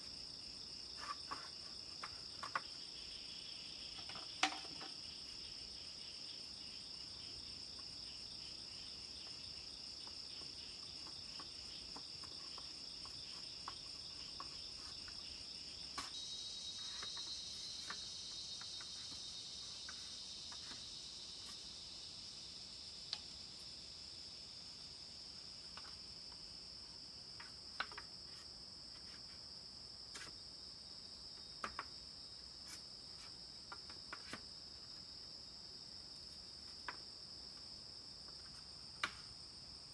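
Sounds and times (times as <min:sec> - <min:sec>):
insect chorus: 0:00.0 - 0:39.9
bamboo clicks and taps: 0:27.4 - 0:28.1, 0:31.6 - 0:31.9, 0:39.0 - 0:39.3.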